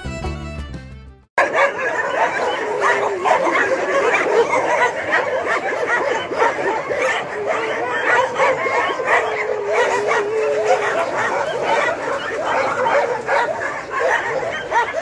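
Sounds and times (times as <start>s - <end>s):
string instrument music: 0.0s - 1.3s
dogs yipping and barking: 1.4s - 15.0s.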